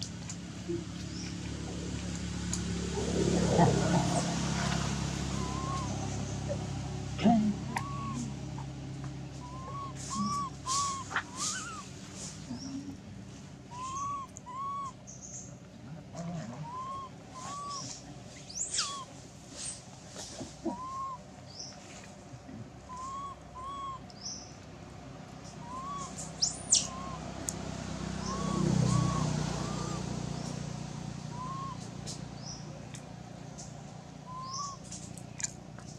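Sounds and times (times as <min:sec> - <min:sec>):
animal hooting calls: 0:03.0 - 0:06.6, 0:07.5 - 0:08.5, 0:09.4 - 0:11.9, 0:13.7 - 0:15.0, 0:16.3 - 0:18.0, 0:20.6 - 0:21.2, 0:22.9 - 0:24.0, 0:25.5 - 0:27.3, 0:28.2 - 0:30.2, 0:31.3 - 0:31.9
sharp rising whistles: 0:05.3 - 0:06.2, 0:07.7 - 0:08.3, 0:09.4 - 0:11.8, 0:25.6 - 0:27.2, 0:28.2 - 0:30.1, 0:31.3 - 0:31.9.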